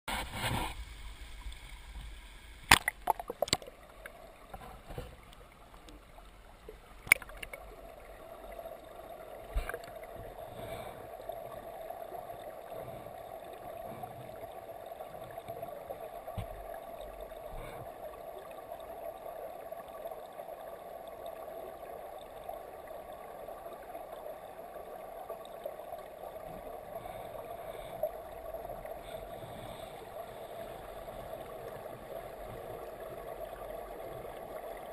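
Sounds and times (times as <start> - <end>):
underwater stream rushing: 0.1 - 34.9
camera knocking on streambed: 2.7 - 3.7.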